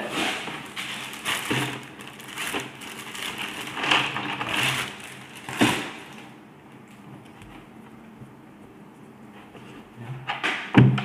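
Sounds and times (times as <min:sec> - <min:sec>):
plastic bag crinkling: 0:00.1 - 0:06.4.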